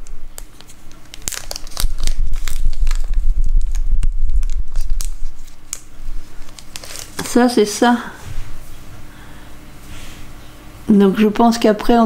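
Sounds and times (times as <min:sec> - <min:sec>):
plastic zip bag crinkling: 0:00.4 - 0:08.0.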